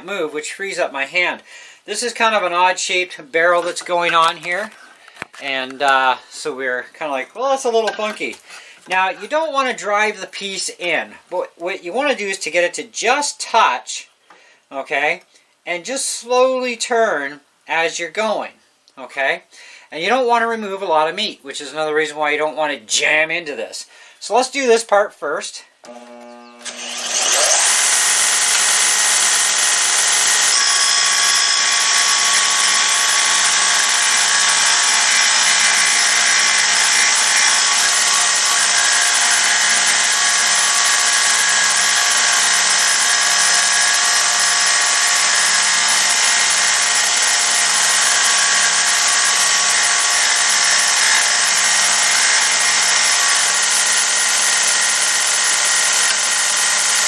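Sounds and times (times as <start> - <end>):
bench sander running: 25.9 - 57.0.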